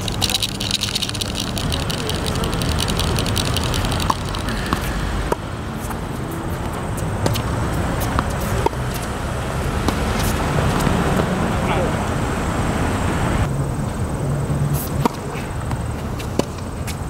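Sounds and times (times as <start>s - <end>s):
tennis ball bouncing on court: 0.2s - 9.2s, 9.8s - 11.4s, 15.0s - 17.0s
tennis ball struck by racquets: 3.4s - 5.9s, 14.8s - 16.7s.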